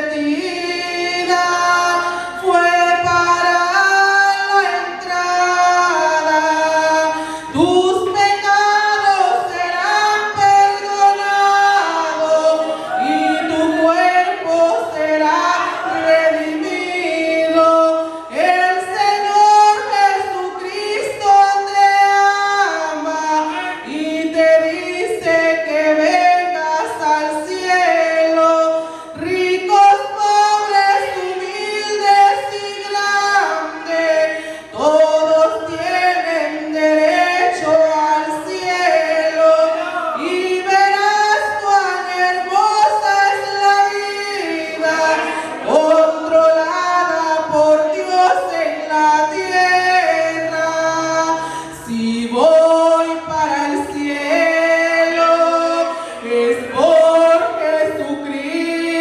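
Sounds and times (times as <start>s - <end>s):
woman singing unaccompanied: 0.0s - 59.0s.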